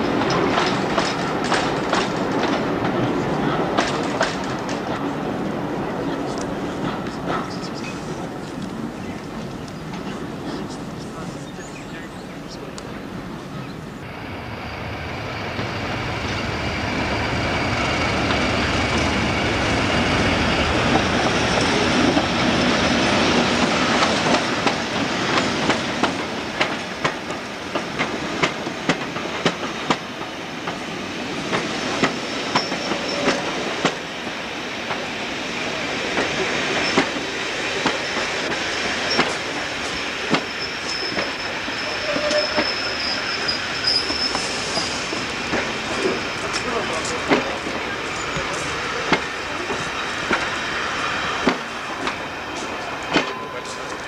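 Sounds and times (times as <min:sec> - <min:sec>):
train wheels clicking over rail joints: 0:00.0 - 0:05.1, 0:17.8 - 0:54.0
diesel locomotive engine: 0:00.0 - 0:54.0
faint high wheel squeal: 0:14.1 - 0:17.8, 0:39.1 - 0:45.0.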